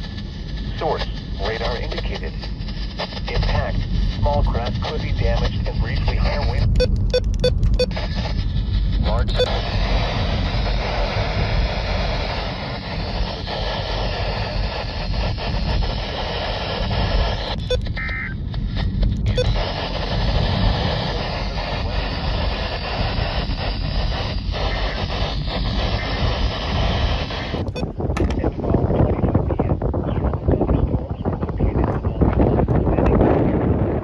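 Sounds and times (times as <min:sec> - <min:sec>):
low rumble: 0:00.0 - 0:34.0
radio static hiss: 0:00.0 - 0:34.0
short beep: 0:06.6 - 0:08.0, 0:09.2 - 0:09.6, 0:17.6 - 0:18.4, 0:19.2 - 0:19.6.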